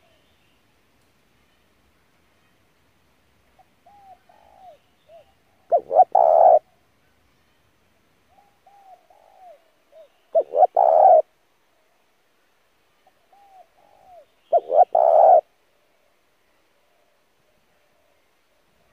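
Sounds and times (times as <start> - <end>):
dove cooing: 3.8 - 6.6, 8.3 - 11.3, 13.3 - 15.5.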